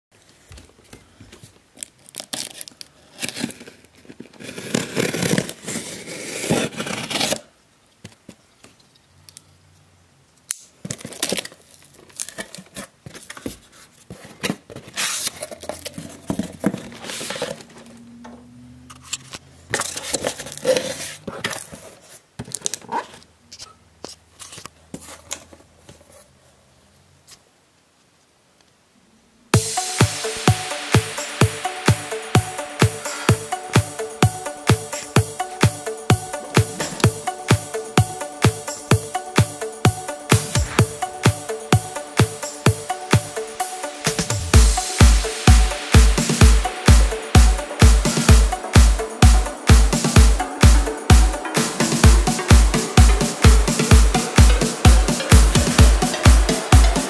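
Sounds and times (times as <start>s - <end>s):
knife slitting packing tape: 2.0s - 3.6s, 4.4s - 7.5s.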